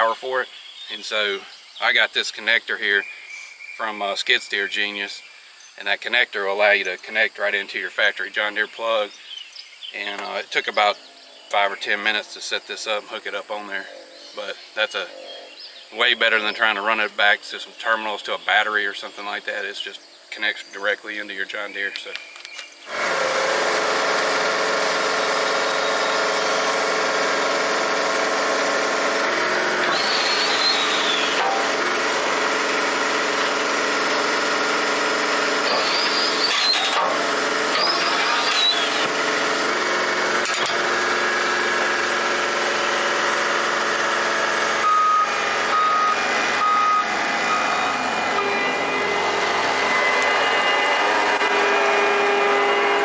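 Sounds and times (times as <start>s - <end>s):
hydraulic blades digging: 22.0s - 53.0s
diesel engine running: 22.9s - 53.0s
short beeps: 44.8s - 50.4s.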